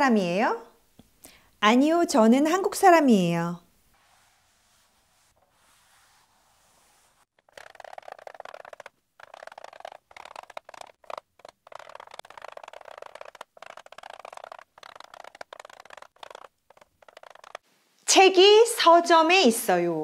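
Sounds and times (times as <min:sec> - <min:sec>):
chalk scratching on blackboard: 0:03.9 - 0:17.6.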